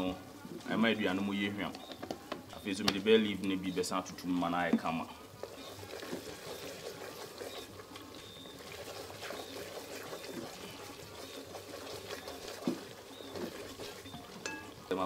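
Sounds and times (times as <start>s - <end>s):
spoon stirring thick stew: 0.2s - 15.0s
spoon knocking against pot: 14.4s - 14.8s.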